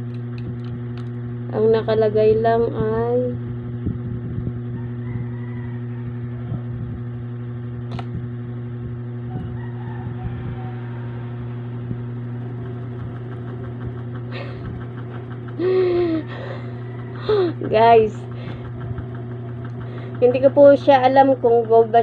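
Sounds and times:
low machine hum: 0.0s - 22.0s
sharp click: 7.9s - 8.2s.

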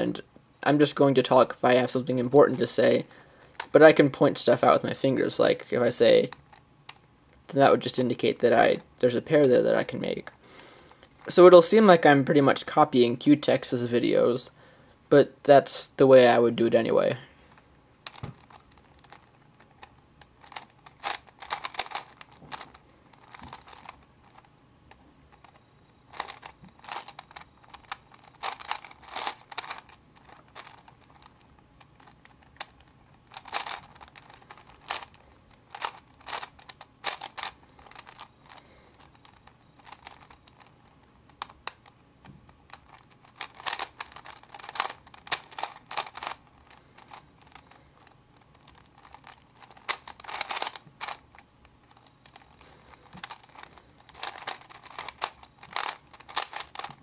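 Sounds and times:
puzzle cube plastic clicking: 2.5s - 3.8s, 18.0s - 57.0s.

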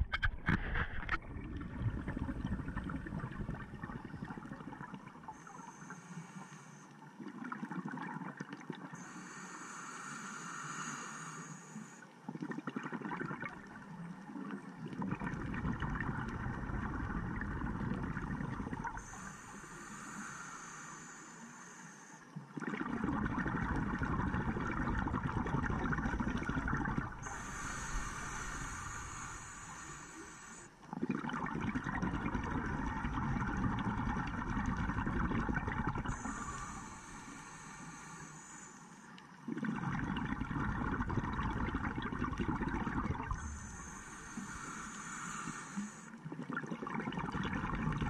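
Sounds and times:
exhaled bubbles rushing underwater: 0.0s - 5.8s, 7.1s - 9.0s, 12.3s - 19.5s, 22.4s - 38.7s, 39.4s - 48.0s
regulator hiss of inhaling: 5.3s - 7.0s, 9.0s - 12.2s, 19.0s - 22.4s, 27.1s - 30.8s, 36.0s - 39.4s, 43.2s - 46.2s.

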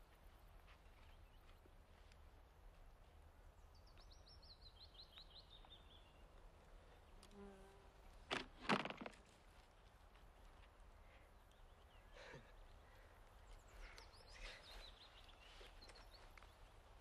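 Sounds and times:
faint bird chirps: 10.9s - 17.0s.

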